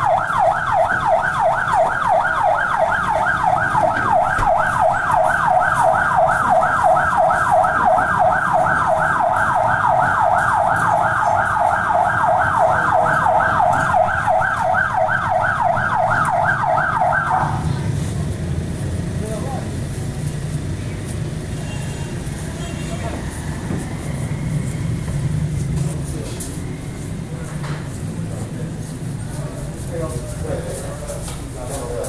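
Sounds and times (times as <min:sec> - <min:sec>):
police siren yelping: 0:00.0 - 0:17.8
low traffic rumble: 0:00.0 - 0:32.0.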